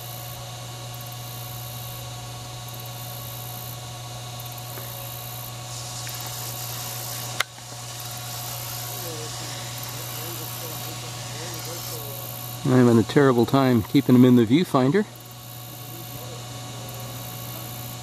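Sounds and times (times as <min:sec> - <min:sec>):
electrical hum and hiss: 0:00.0 - 0:18.0
sharp click: 0:07.3 - 0:07.7.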